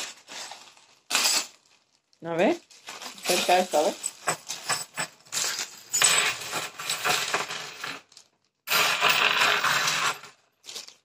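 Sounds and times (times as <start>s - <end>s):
plastic packets handled: 0.0s - 6.0s, 10.6s - 11.0s
metal screws rattling and clinking: 3.2s - 10.4s.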